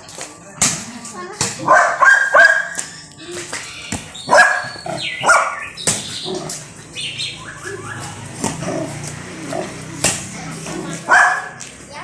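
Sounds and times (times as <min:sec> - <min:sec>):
puppy barking in high yaps: 0:01.6 - 0:02.9, 0:04.2 - 0:05.8, 0:11.0 - 0:11.6.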